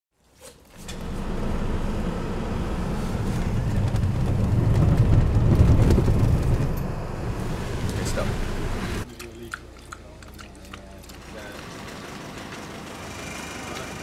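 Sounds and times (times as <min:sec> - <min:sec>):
vehicle engine and tyre rumble: 0:00.7 - 0:09.1.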